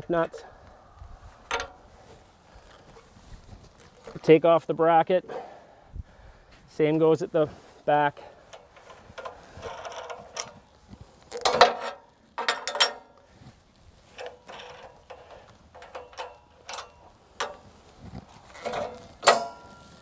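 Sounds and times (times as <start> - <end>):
metal hardware clanking: 1.4 - 1.9, 8.5 - 10.7, 11.3 - 13.3, 14.1 - 17.7, 18.5 - 20.0.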